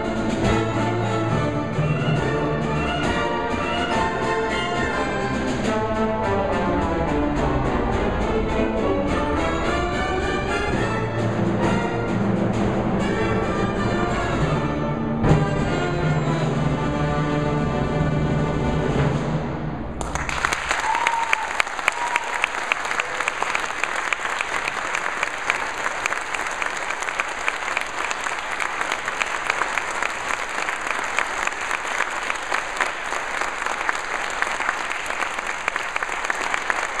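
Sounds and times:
audience applause: 20.0s - 37.0s.

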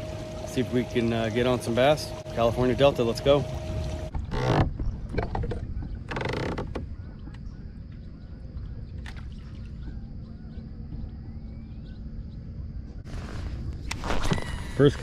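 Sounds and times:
short creak: 4.1s - 6.9s, 13.1s - 14.8s
steady low rumble: 6.7s - 15.0s
faint bird chirps: 6.8s - 13.0s.

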